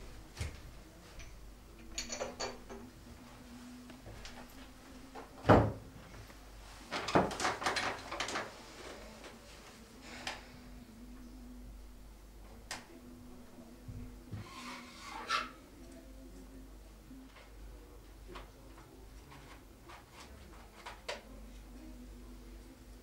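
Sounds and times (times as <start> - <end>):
household objects clattering: 1.2 - 2.9, 6.9 - 9.4.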